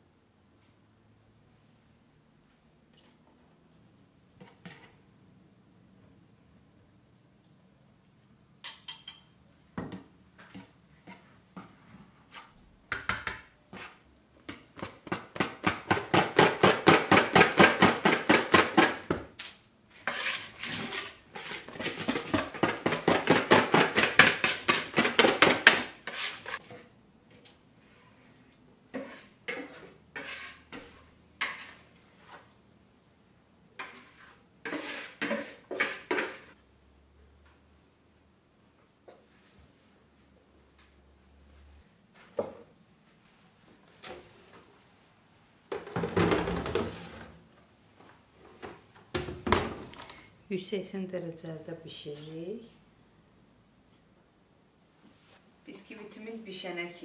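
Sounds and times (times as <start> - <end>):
whisk tapping and scraping bowl: 20.0 - 26.8, 28.9 - 31.9, 33.8 - 36.6.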